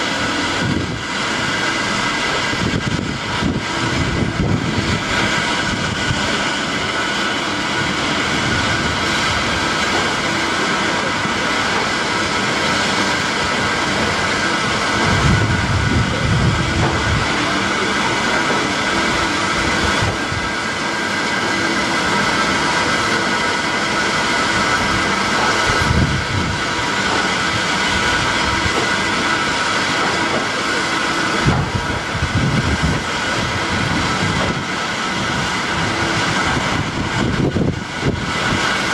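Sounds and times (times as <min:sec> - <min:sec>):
electric train humming: 0:00.0 - 0:38.9
wheels thumping over rail joints: 0:16.7 - 0:17.2.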